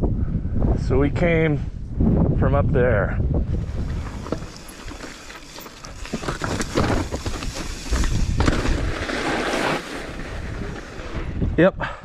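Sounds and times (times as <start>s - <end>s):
bike tyres crunching on stones: 3.5s - 11.4s
bike rattling and knocking: 3.7s - 9.3s.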